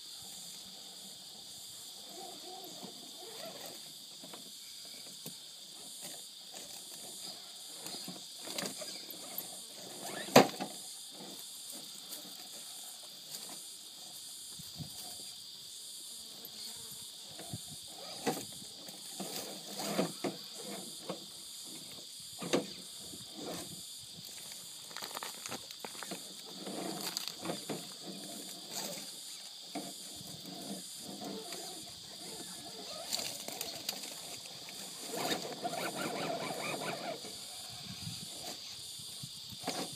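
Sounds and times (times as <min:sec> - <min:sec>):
insects droning: 0:00.0 - 0:39.9
toy motor whirring: 0:30.4 - 0:38.8.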